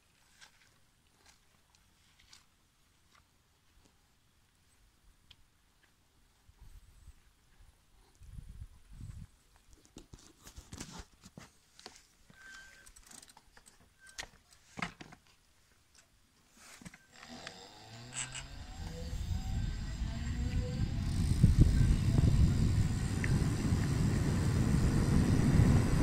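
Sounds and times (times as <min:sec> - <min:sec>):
electric motor whine: 0:17.1 - 0:26.0
rumble of tyres and wind: 0:18.3 - 0:26.0.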